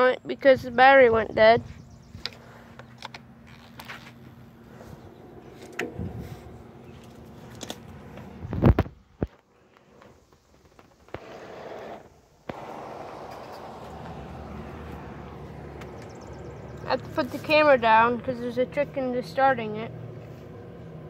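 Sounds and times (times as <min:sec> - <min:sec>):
lawn tractor engine running: 0:11.2 - 0:21.0.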